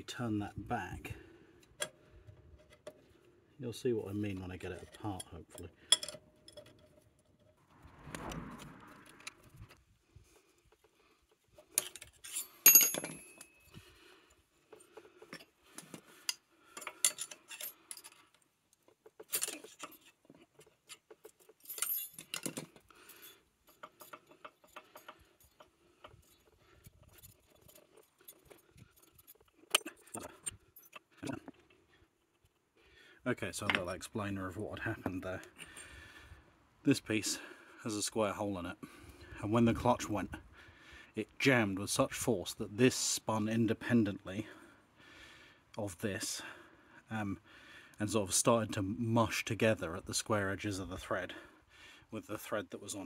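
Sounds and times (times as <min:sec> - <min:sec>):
hand tools clinking on metal: 0:04.7 - 0:07.1, 0:11.7 - 0:13.7, 0:16.2 - 0:18.3, 0:19.0 - 0:31.4.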